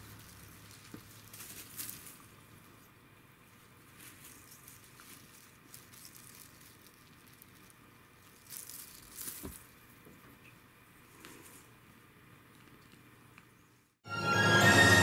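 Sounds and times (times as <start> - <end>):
cat toy streamers rustling: 0.0 - 10.0.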